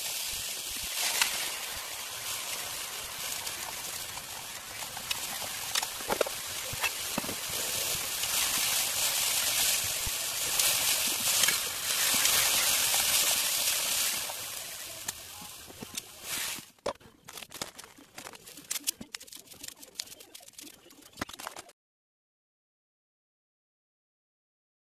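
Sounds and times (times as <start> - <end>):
food sizzling in a frying pan: 0.0 - 16.6.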